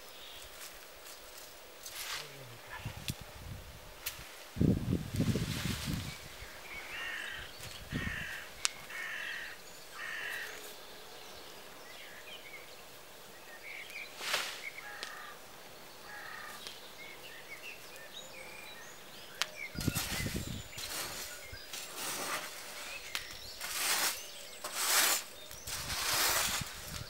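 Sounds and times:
small birds chirping: 0.0s - 3.4s, 5.2s - 27.0s
branches rustling: 0.0s - 27.0s
crow cawing: 6.9s - 10.6s, 14.8s - 15.4s, 16.0s - 16.6s.

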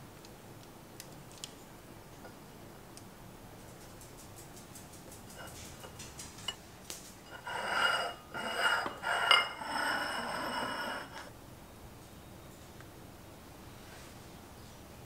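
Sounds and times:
metal utensil clinking on a dish: 7.3s - 11.2s
utensil scraping a dish: 7.3s - 11.3s.

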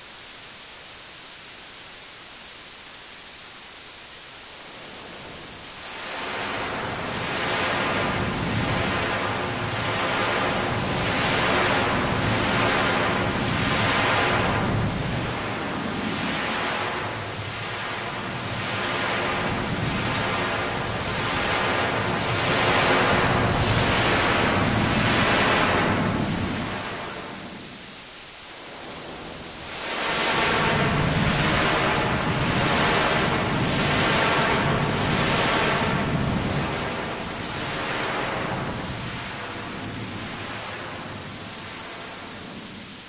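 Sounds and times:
distorted singing voice hiss: 0.0s - 7.8s.

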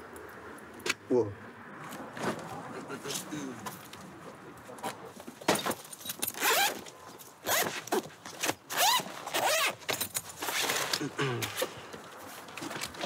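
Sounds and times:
bag zipper rasping open: 6.3s - 6.8s, 7.4s - 9.8s.

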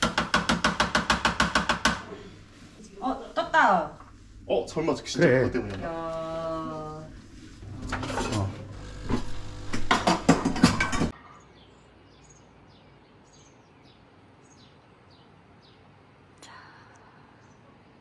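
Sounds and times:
coffee machine humming and clicking: 7.6s - 11.1s
birds chirping: 11.3s - 15.9s.

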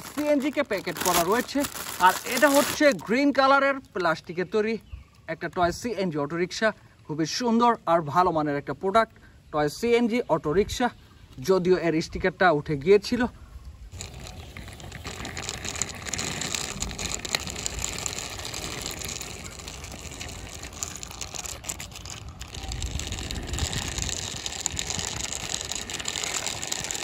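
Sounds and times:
plastic wheels rolling on concrete: 0.0s - 5.9s, 13.0s - 27.0s.

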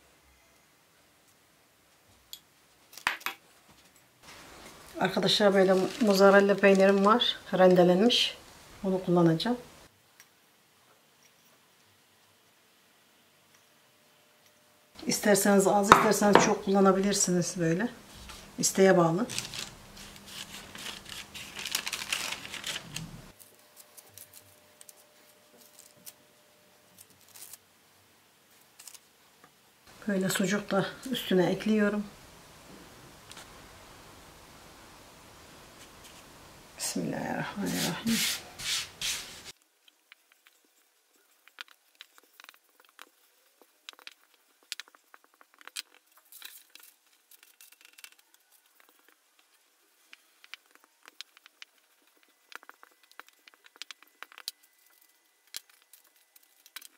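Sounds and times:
baking paper crinkling: 4.2s - 8.2s, 18.1s - 26.2s, 26.9s - 27.6s, 37.5s - 56.9s
baking paper rustling: 4.2s - 8.2s, 18.0s - 26.2s, 37.4s - 39.6s.

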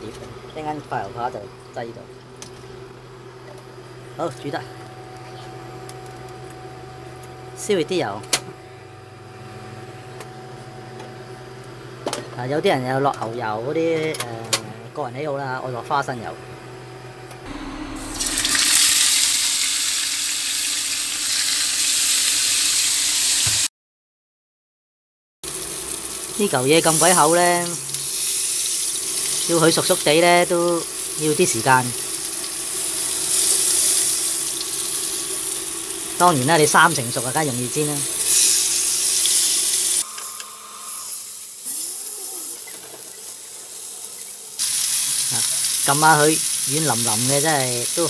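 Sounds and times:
meat sizzling in hot oil: 18.0s - 23.7s, 25.5s - 40.0s, 40.9s - 48.0s.

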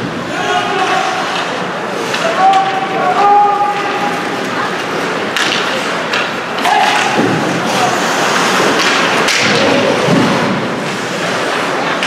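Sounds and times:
ice rink background noise: 0.0s - 12.0s
puck and sticks knocking boards: 5.3s - 7.9s, 8.5s - 12.0s.

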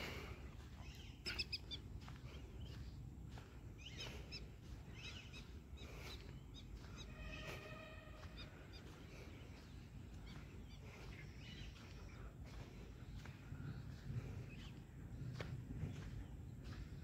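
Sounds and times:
low background rumble: 0.0s - 17.0s
bird chirps: 0.6s - 12.3s
steady-pitched bird call: 3.8s - 12.2s.

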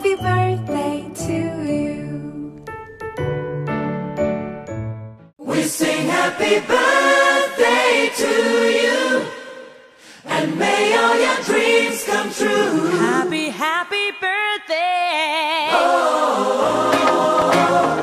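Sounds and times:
choir singing: 5.4s - 13.4s, 15.7s - 18.0s.

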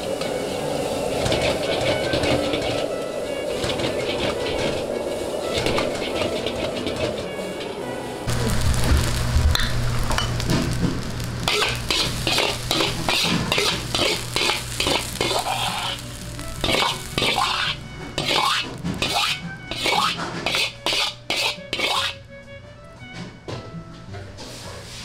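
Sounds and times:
food sizzling: 0.0s - 22.3s
metal spatula scraping wok: 1.1s - 7.4s, 11.4s - 22.2s.

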